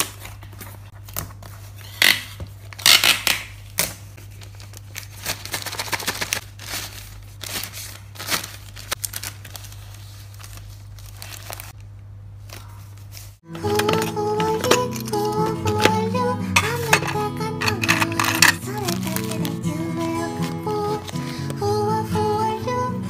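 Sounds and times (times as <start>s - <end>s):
plastic bag crinkling: 4.2s - 11.8s, 12.5s - 21.4s.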